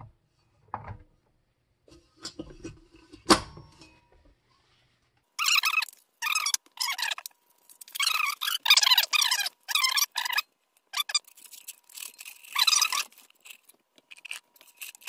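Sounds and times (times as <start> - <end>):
foil wrapper crackling: 5.8 - 15.0.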